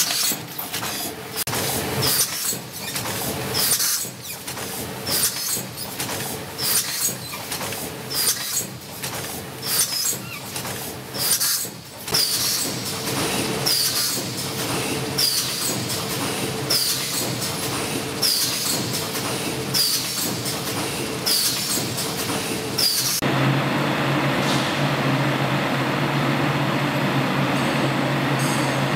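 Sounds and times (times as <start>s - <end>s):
packing machine clatter and hiss: 0.0s - 23.2s
steady machine hum: 11.8s - 28.9s.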